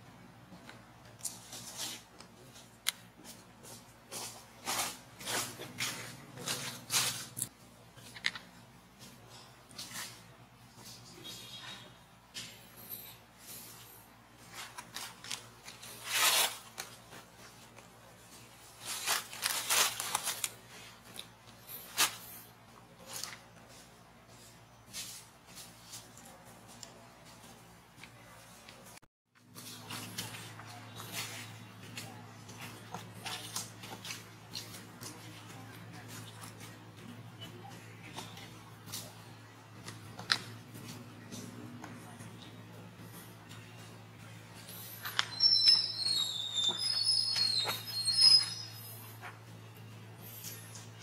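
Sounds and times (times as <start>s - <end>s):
dry leaves and twig crackling: 18.8s - 20.9s.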